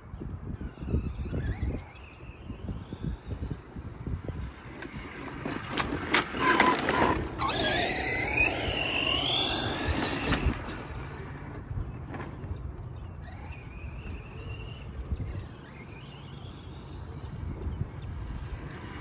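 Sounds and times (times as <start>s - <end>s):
electric motor whining: 0.6s - 19.0s
tyres rolling on rough ground: 4.3s - 13.8s.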